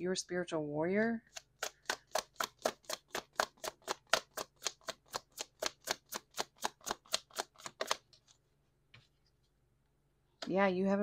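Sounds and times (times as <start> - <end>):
cards being shuffled: 1.2 - 8.4.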